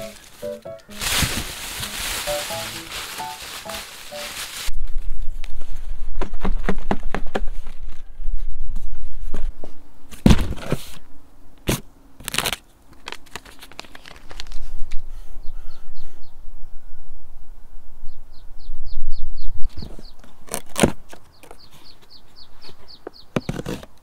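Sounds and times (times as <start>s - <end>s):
scraps and newspaper rustling: 0.0s - 5.1s, 12.3s - 14.8s.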